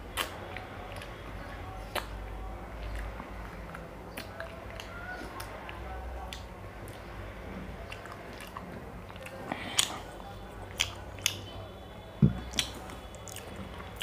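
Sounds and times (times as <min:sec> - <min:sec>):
wet chewing: 0:00.0 - 0:07.1, 0:07.8 - 0:11.5, 0:12.3 - 0:14.0
lip smacks: 0:00.1 - 0:01.2, 0:01.8 - 0:07.1, 0:07.8 - 0:11.5, 0:12.3 - 0:14.0
soft thump: 0:12.2 - 0:12.6.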